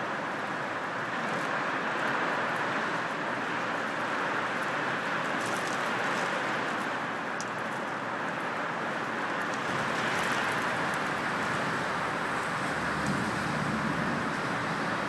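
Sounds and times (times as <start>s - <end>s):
heavy storm rain: 0.0s - 15.0s
wind: 0.0s - 15.0s
vehicle passing rumble: 9.9s - 15.0s.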